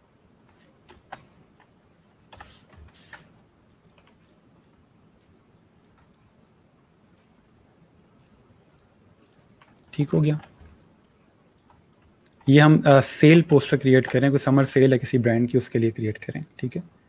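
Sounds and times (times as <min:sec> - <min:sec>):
mouse clicks: 0:05.2 - 0:06.3, 0:08.2 - 0:12.5.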